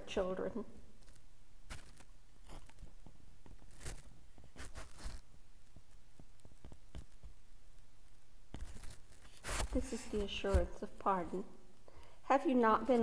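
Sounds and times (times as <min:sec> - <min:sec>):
paper rustling near microphone: 0:01.0 - 0:07.3, 0:08.6 - 0:10.9.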